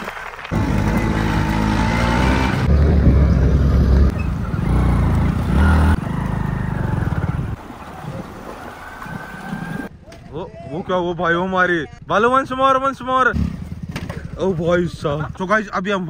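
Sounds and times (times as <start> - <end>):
scooter engines running: 0.2 - 9.9, 13.4 - 15.5.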